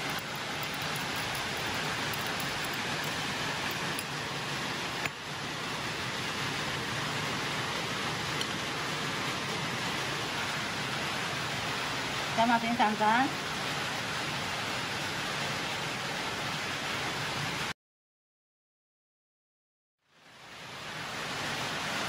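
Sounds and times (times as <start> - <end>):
heavy rain hissing: 0.0 - 17.7, 20.2 - 22.0.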